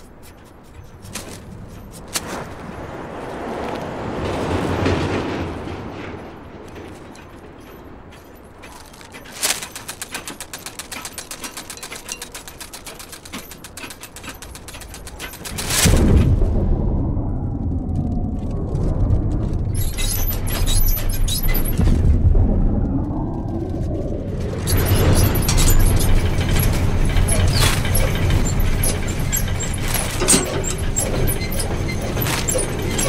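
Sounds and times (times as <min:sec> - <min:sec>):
fast even clicking: 0:08.5 - 0:16.0
swelling rush of noise: 0:15.8 - 0:33.0
loud low boom: 0:15.9 - 0:19.8.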